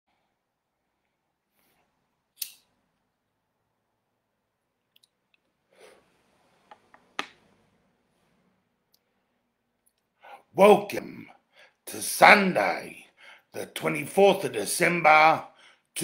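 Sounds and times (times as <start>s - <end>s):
man breathing: 10.1s - 10.6s, 11.3s - 11.8s, 13.1s - 13.6s, 15.5s - 16.0s.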